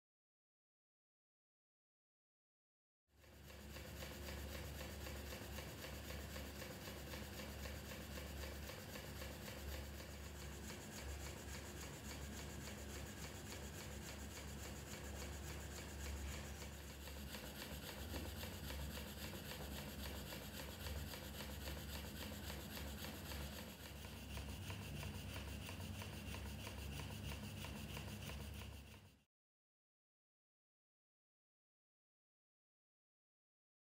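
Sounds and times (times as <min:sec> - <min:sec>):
model steam engine chuffing: 0:03.2 - 0:29.2.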